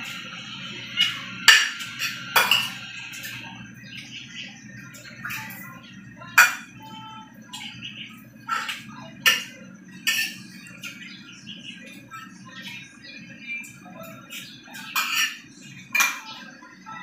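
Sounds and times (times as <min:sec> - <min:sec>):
steady low hum: 0:00.0 - 0:17.0
cutlery clinking on a ceramic plate: 0:01.0 - 0:03.4, 0:06.3 - 0:06.8, 0:08.5 - 0:11.0, 0:14.3 - 0:16.4.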